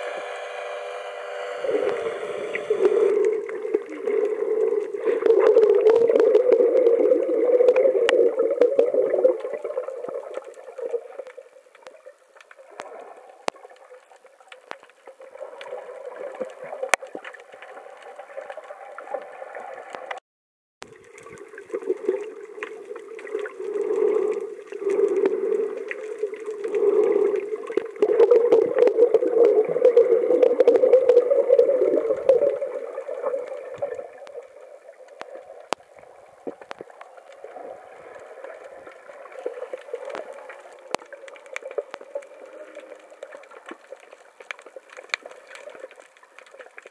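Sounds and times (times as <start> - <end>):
small clicks: 38.0 - 46.9.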